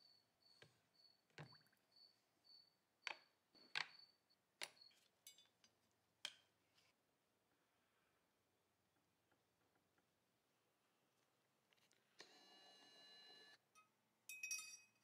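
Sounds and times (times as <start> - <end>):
faint high chirp: 0.0 - 2.8.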